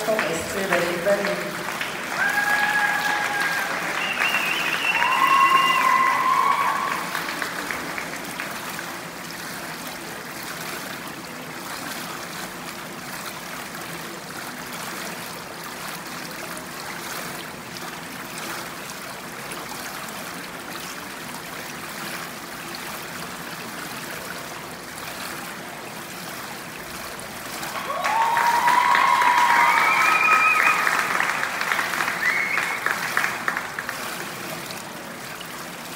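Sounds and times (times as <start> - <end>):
audience applause: 0.0 - 9.1, 27.7 - 34.3
whistles from audience: 3.9 - 6.9, 29.3 - 31.0, 32.1 - 32.8.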